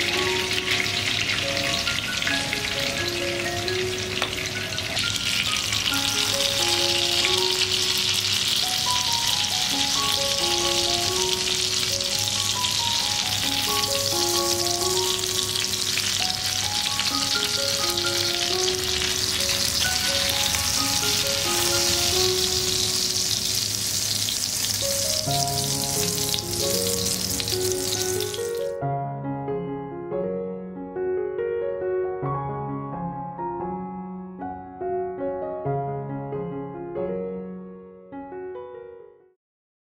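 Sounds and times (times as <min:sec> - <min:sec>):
oil sizzling in a frying pan: 0:00.0 - 0:28.8
soft keyboard background music: 0:00.0 - 0:39.3.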